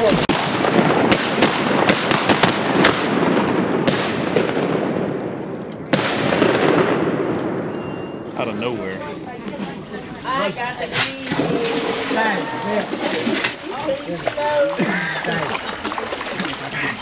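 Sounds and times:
shotgun blasts echoing: 0.0s - 8.2s.

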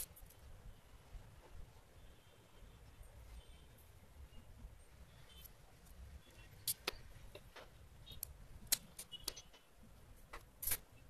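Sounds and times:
battery cells clicking on tiled floor: 10.4s - 10.9s.

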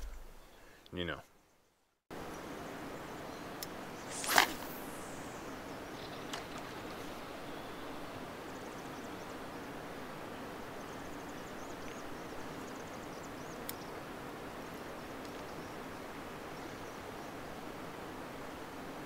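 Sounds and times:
outdoor background hiss: 0.0s - 19.0s
faint high chirps: 3.1s - 9.4s
sharp click: 3.6s - 5.3s.

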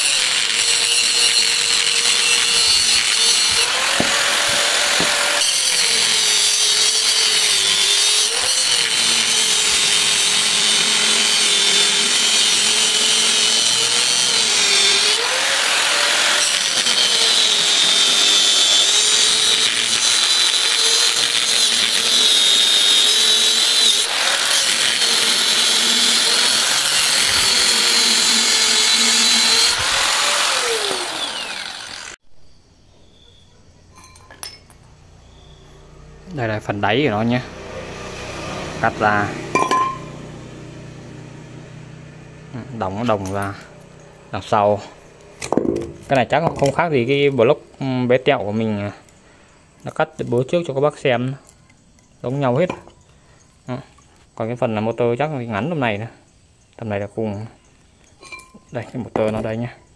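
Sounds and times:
angle grinder cutting metal: 0.0s - 32.2s, 37.0s - 46.7s
grinder winding down: 0.0s - 32.2s, 35.8s - 45.4s.

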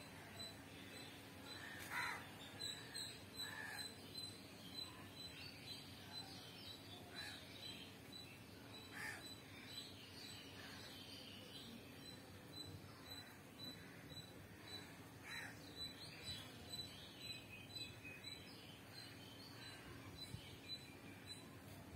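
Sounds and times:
crow cawing: 1.6s - 2.2s, 3.4s - 3.9s, 8.9s - 9.2s, 15.2s - 15.6s.

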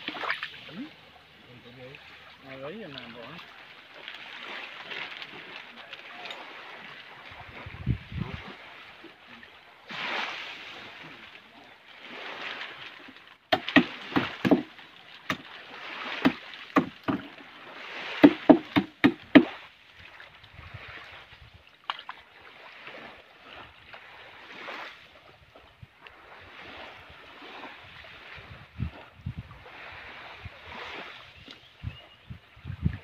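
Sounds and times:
water sloshing against boat: 0.0s - 33.0s
sharp knocks on hull: 13.5s - 14.7s, 15.3s - 15.5s, 16.2s - 17.4s, 18.1s - 19.6s.

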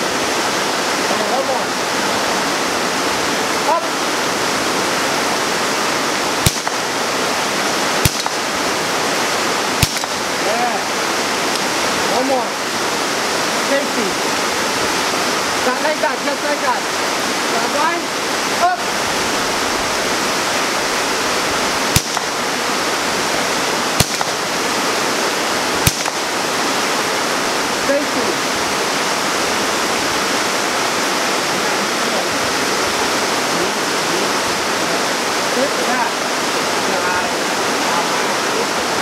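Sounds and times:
heavy rain hissing: 0.0s - 39.0s
rifle shots: 6.4s - 7.2s, 8.0s - 8.8s, 9.7s - 10.5s, 21.9s - 22.5s, 23.9s - 24.8s, 25.7s - 26.6s.

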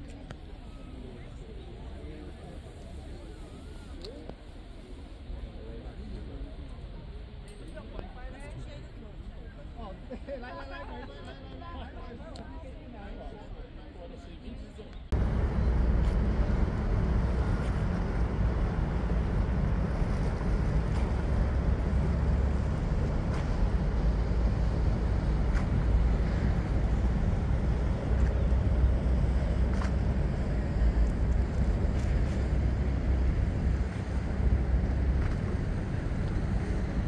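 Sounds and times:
train low rumble: 15.1s - 37.0s
wind on microphone: 15.1s - 37.0s.

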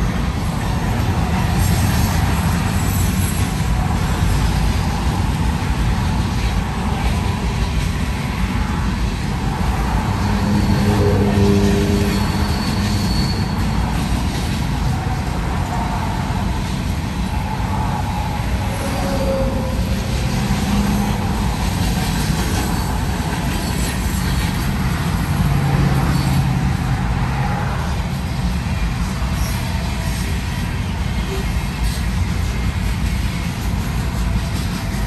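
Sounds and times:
freight train rumbling past: 0.0s - 35.0s.

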